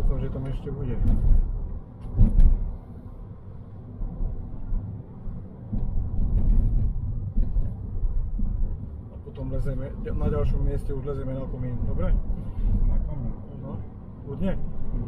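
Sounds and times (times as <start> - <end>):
car rumbling on the move: 0.0 - 15.0
thump: 1.0 - 2.7.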